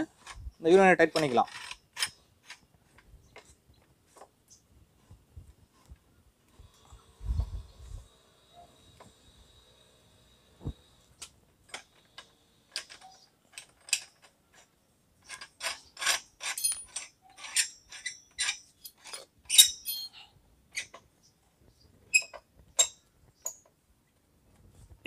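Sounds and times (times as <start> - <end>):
metal pipe fitting clicking and scraping: 12.7 - 20.2, 22.1 - 23.6.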